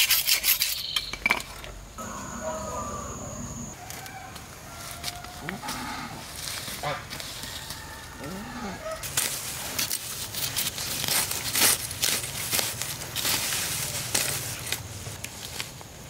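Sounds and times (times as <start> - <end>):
rustling and crackling: 8.9 - 16.0.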